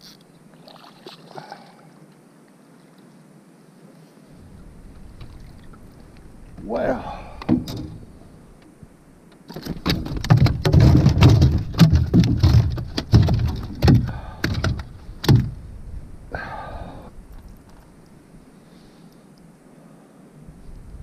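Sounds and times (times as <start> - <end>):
fish thumping on boat floor: 9.5 - 15.6.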